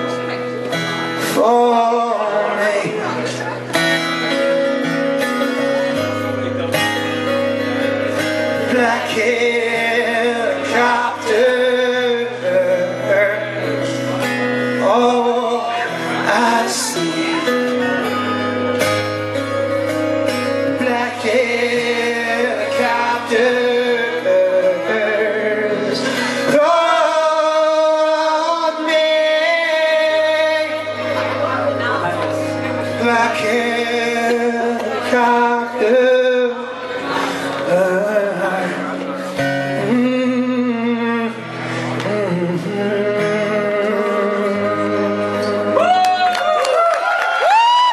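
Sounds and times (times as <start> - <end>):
man singing: 0.0 - 46.4
acoustic guitar strumming: 0.0 - 47.9.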